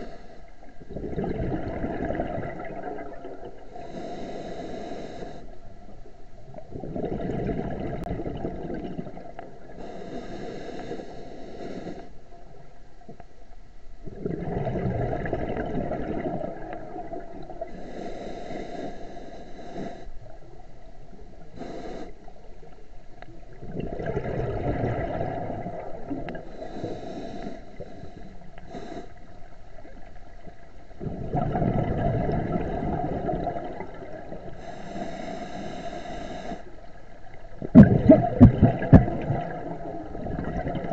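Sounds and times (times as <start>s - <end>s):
bubbling regulator exhalations: 0.8s - 3.6s, 6.7s - 9.4s, 14.0s - 18.0s, 23.5s - 27.3s, 31.0s - 36.5s, 37.5s - 40.9s
hissing regulator inhalations: 3.7s - 5.6s, 9.8s - 12.3s, 17.7s - 20.2s, 21.5s - 22.4s, 26.4s - 29.5s, 34.4s - 37.0s.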